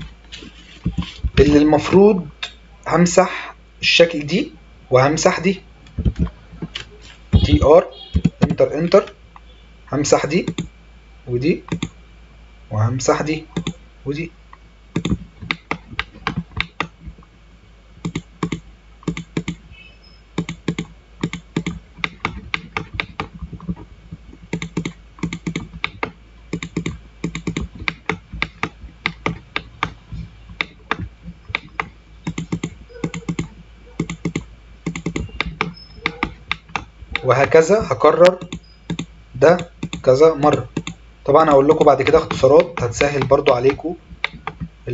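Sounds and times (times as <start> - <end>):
mouse and keyboard clicking: 10.5 - 10.7, 11.7 - 12.0, 13.6 - 13.8, 15.0 - 17.0, 18.0 - 19.6, 20.4 - 23.8, 24.5 - 30.0, 30.6 - 37.6, 38.4 - 41.0.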